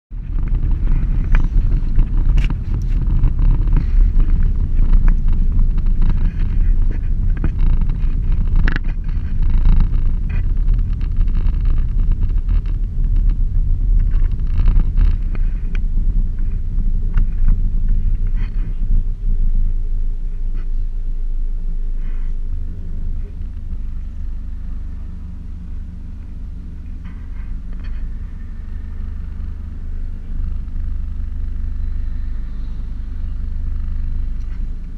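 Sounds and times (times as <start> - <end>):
vehicle engine tyre and wind rumble: 0.1 - 34.9
small rattles and knocks: 0.2 - 19.2.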